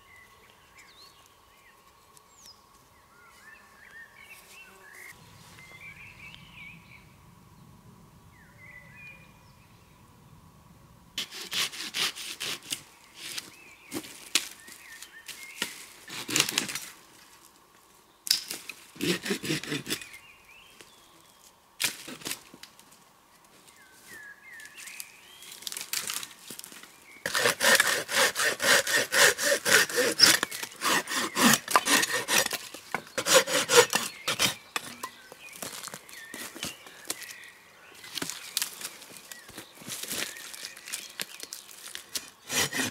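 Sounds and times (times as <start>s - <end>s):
hand saw cutting wood: 11.2s - 13.4s, 16.1s - 16.8s, 19.0s - 20.1s, 27.3s - 35.1s, 42.2s - 42.9s
birds chirping: 29.8s - 41.8s.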